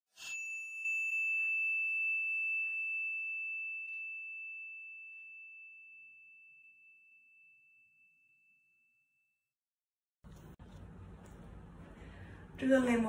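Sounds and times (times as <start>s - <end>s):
bright bell ding: 0.2s - 8.9s.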